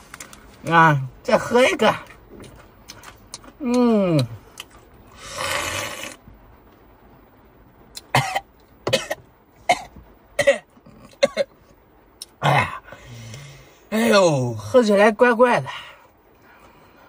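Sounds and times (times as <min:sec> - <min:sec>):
man slurping a drink: 0:05.1 - 0:06.2
man coughing: 0:08.1 - 0:11.6.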